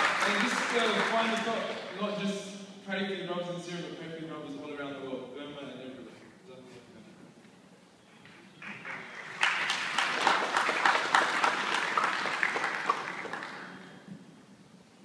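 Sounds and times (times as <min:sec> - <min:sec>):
audience applause: 0:00.0 - 0:02.1, 0:08.6 - 0:14.1.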